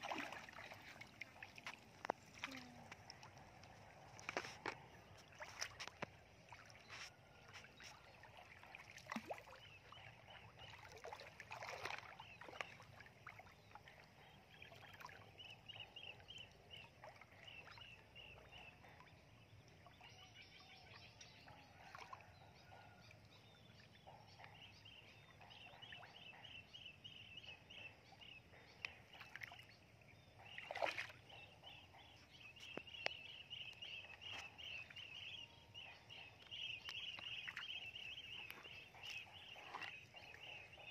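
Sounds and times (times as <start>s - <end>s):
feet splashing in water: 0.0s - 9.7s, 10.8s - 13.4s, 30.6s - 31.3s.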